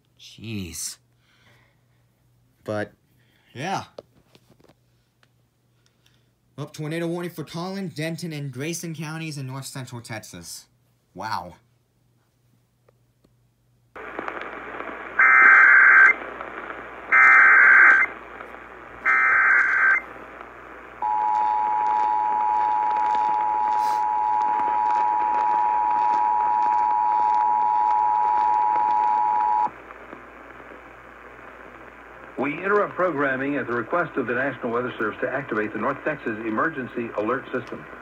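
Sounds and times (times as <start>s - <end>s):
radio static: 14.0s - 38.0s
data tone bursts: 17.1s - 18.1s, 19.0s - 20.1s.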